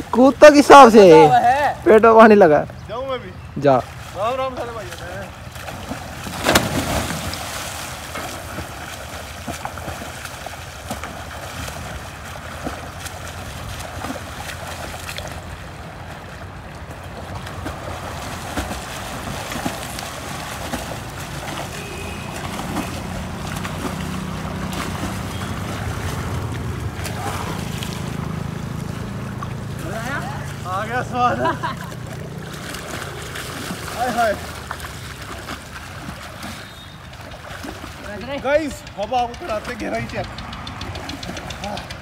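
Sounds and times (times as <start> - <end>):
swimmers splashing: 0.0 - 42.0
person jumping into water: 5.5 - 30.6, 31.6 - 38.2.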